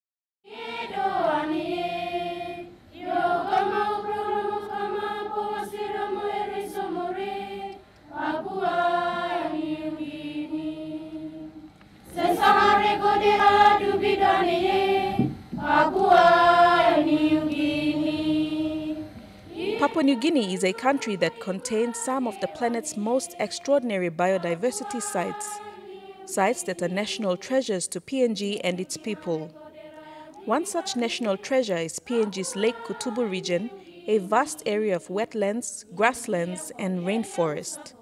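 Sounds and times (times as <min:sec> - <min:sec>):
group of voices chanting: 0:12.1 - 0:23.2.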